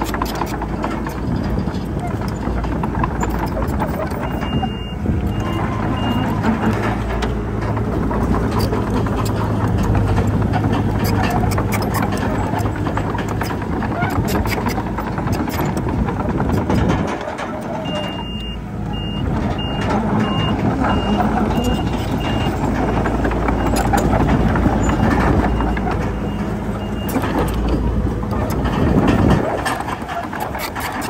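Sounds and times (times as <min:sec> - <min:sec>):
diesel machinery running: 0:00.0 - 0:31.0
backup alarm beeping: 0:04.1 - 0:06.4, 0:17.9 - 0:22.7.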